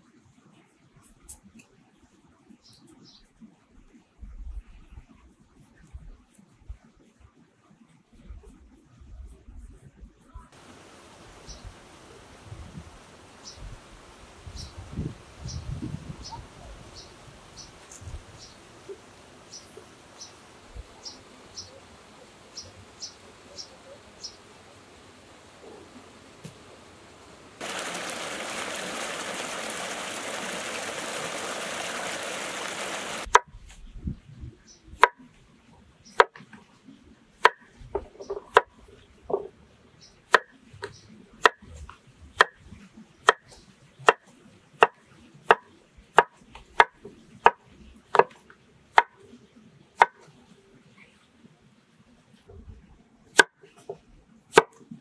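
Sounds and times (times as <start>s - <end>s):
steady rushing hiss: 10.6s - 33.4s
cleaver chopping on wooden board: 53.4s - 53.6s.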